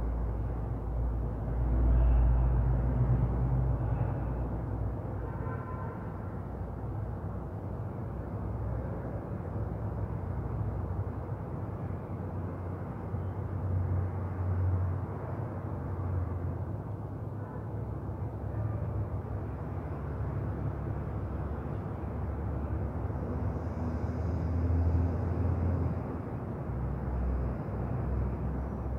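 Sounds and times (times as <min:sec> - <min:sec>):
low rumbling background noise: 0:00.0 - 0:05.3.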